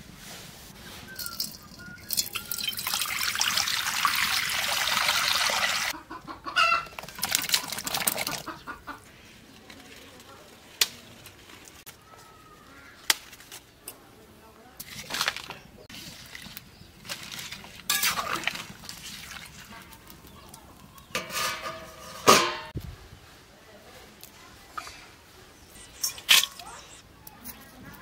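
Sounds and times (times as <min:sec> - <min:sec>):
chickens clucking: 0:05.6 - 0:09.6.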